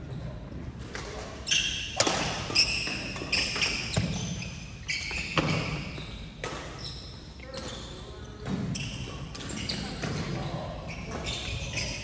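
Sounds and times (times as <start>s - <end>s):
shoes squeaking on wooden floor: 2.5s - 8.0s.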